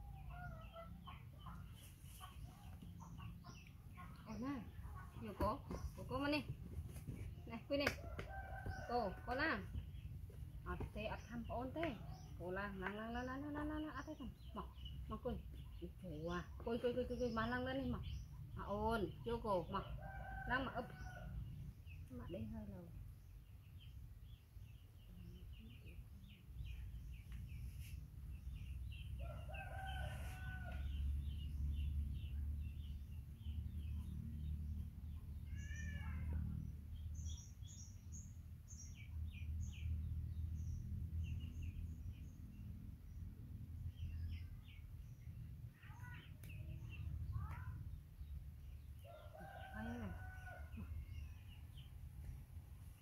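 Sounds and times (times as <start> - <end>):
small birds chirping: 0.0 - 53.0
roosters crowing: 29.2 - 31.8, 49.0 - 51.3.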